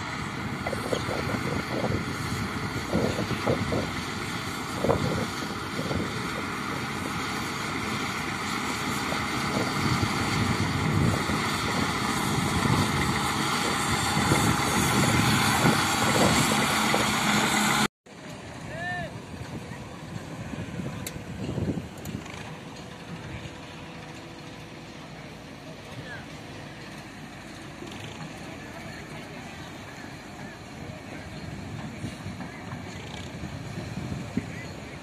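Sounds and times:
bulldozer diesel engine running: 0:00.0 - 0:35.0.

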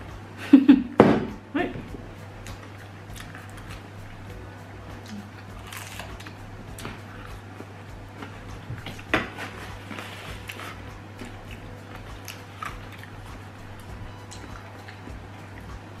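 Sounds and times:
steady low hum: 0:00.0 - 0:16.0
pizza crunching while chewed: 0:05.0 - 0:07.4, 0:08.2 - 0:15.7.

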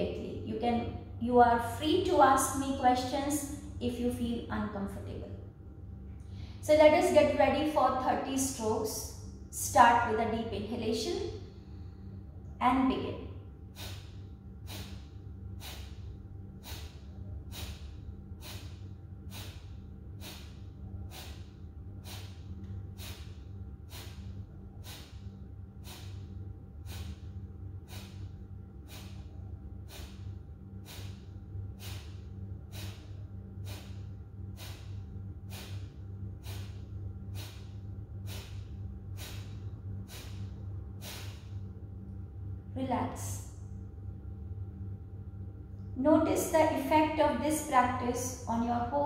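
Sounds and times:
steady low hum: 0:00.0 - 0:49.0
woman's forceful nasal exhalations: 0:13.7 - 0:41.6.

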